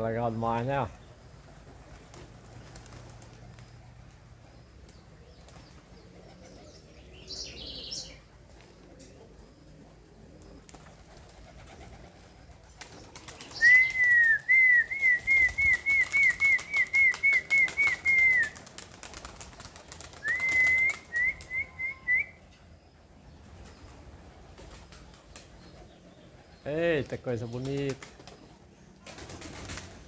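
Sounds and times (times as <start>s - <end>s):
pigeon wings flapping: 1.4s - 6.7s, 10.4s - 21.7s, 23.6s - 26.0s, 27.1s - 30.0s.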